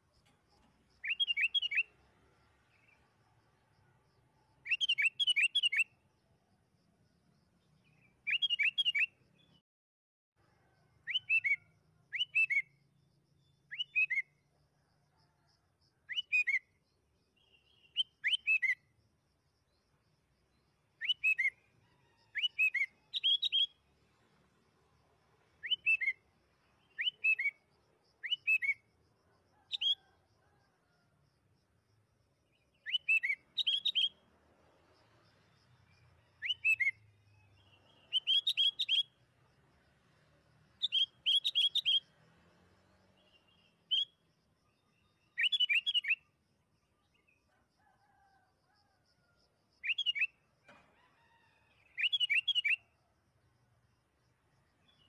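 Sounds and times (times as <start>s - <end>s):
bulbul singing: 0.9s - 2.0s, 22.4s - 23.8s, 32.7s - 34.2s, 36.4s - 39.2s, 40.8s - 42.1s, 52.0s - 52.8s.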